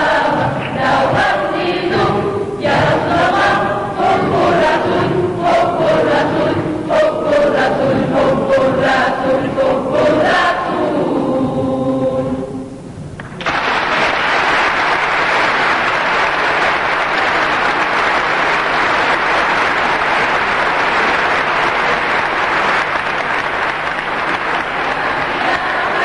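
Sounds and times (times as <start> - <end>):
large audience applauding: 13.2 - 26.0.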